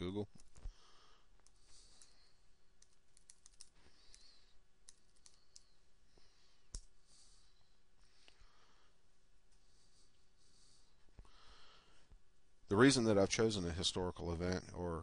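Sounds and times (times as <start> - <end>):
computer keyboard typing: 2.8 - 5.8.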